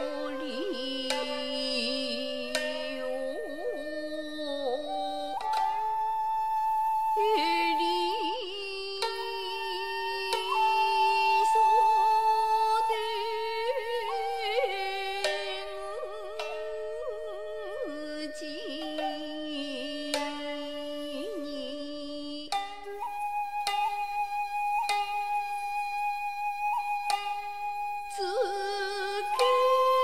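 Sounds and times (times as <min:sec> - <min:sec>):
bamboo flute long tones: 0:00.0 - 0:30.0.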